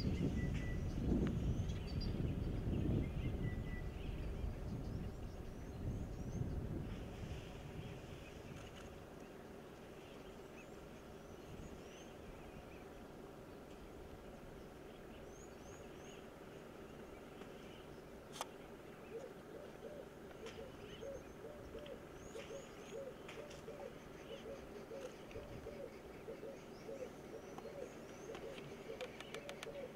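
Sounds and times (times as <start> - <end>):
low hooting bird call: 18.7 - 29.9.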